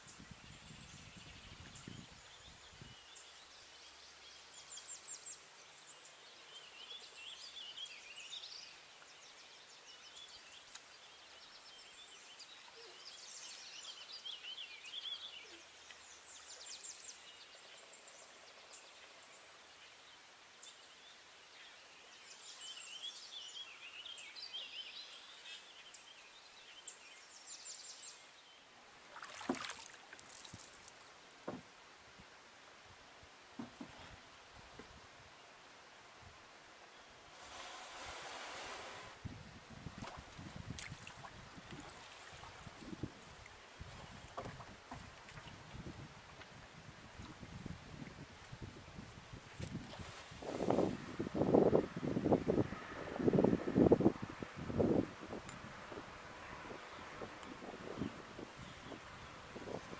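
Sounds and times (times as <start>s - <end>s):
songbirds chirping and trilling: 0.0s - 28.8s, 49.7s - 59.9s
faint outdoor hiss: 0.0s - 59.9s.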